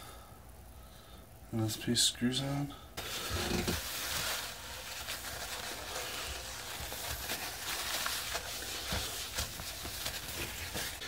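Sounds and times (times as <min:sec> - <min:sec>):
paper towel rubbing a sink: 0:03.0 - 0:11.0.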